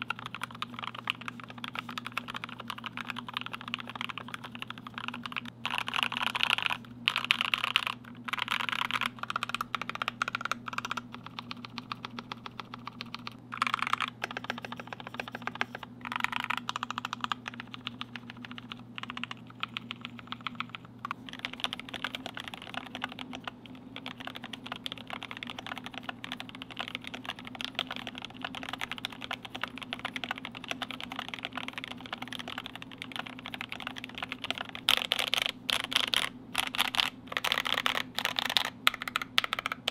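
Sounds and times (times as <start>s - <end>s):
mechanical keyboard typing: 0.0s - 39.9s.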